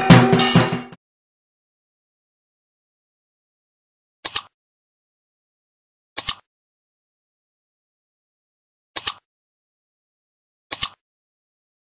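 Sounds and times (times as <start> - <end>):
mouse double click: 4.2 - 4.5, 6.2 - 6.5, 9.0 - 9.2, 10.7 - 11.0.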